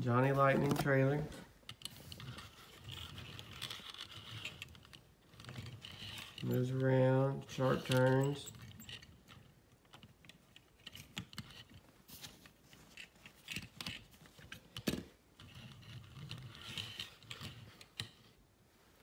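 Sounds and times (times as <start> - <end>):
toy cars clicking and rattling: 1.7 - 6.8, 14.8 - 18.2.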